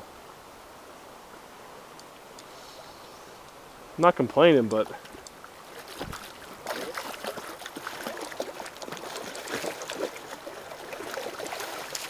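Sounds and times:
river running over rocks: 0:03.2 - 0:12.0
fish splashing at surface: 0:05.7 - 0:12.0.

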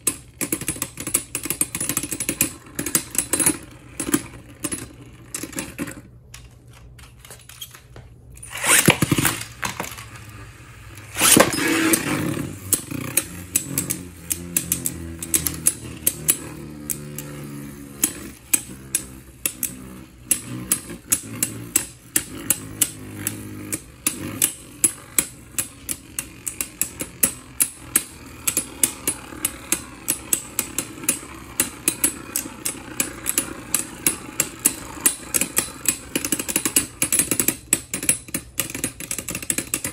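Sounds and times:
spinning tops whirring: 0:00.0 - 0:07.0, 0:07.8 - 0:39.9
spinning tops clashing clicks: 0:00.0 - 0:39.9
spinning tops launching: 0:08.4 - 0:38.9.

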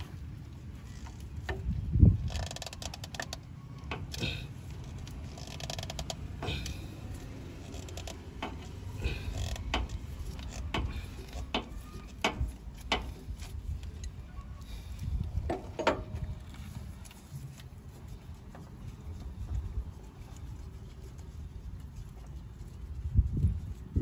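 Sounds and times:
filter wrench creaking and scraping: 0:00.8 - 0:17.2.

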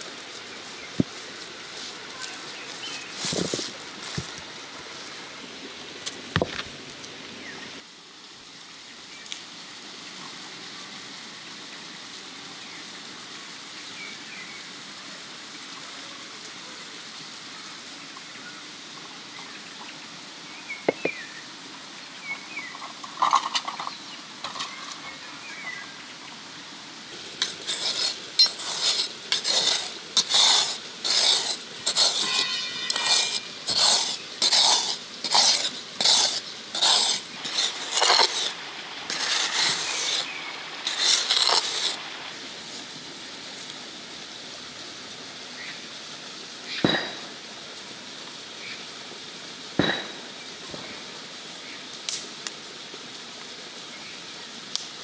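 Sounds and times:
steady background hiss: 0:00.0 - 0:55.0
utensil scraping in metal bowl: 0:27.4 - 0:42.0.

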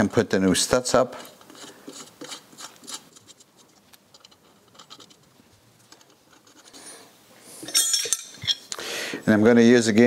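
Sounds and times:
metal stud scratching and clicking: 0:01.4 - 0:05.3.

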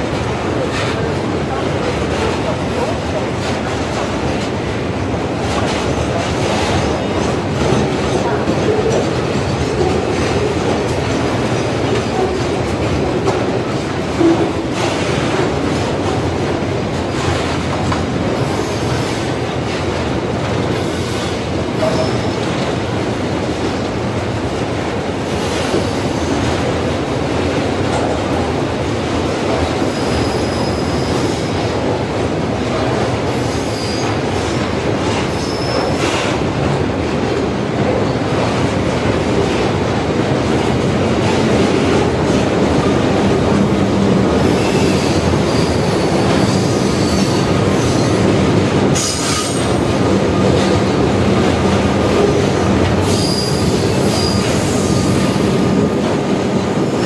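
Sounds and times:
train wheels rumbling on rail: 0:00.0 - 0:57.0
high wheel squeals: 0:53.0 - 0:55.2.

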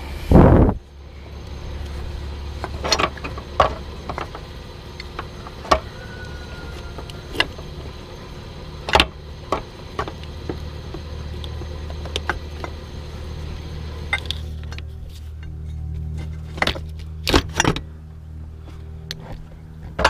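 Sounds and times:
steady low hum: 0:00.0 - 0:20.0
parts knocking in engine bay: 0:01.8 - 0:12.9.

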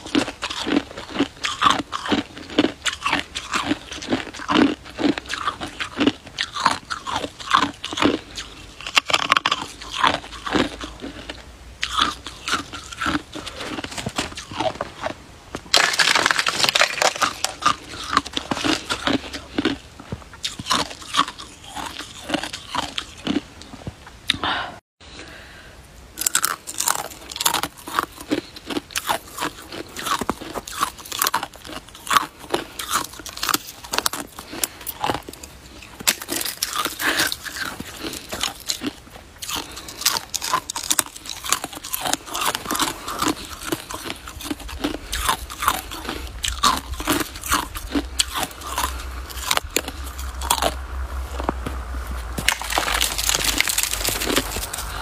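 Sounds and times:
icicles crunching as chewed: 0:00.0 - 0:24.5, 0:26.2 - 0:55.0.

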